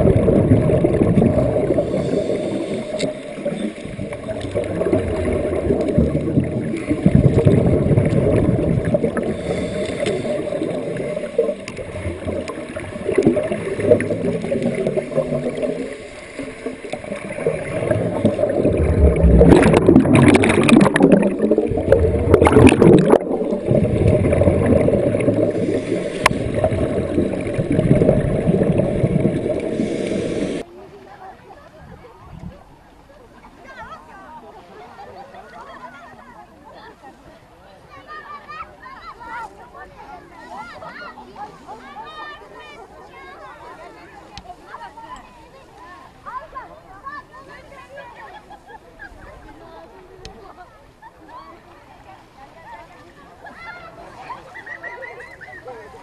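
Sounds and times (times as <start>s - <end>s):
divers exhaling bubbles: 0.0s - 30.7s
low rumble of moving water: 0.0s - 56.0s.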